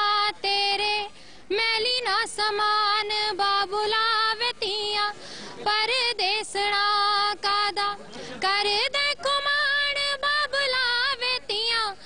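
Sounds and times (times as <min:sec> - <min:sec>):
woman singing into microphone: 0:00.0 - 0:12.0
singer breathing: 0:01.1 - 0:01.5, 0:05.2 - 0:05.6.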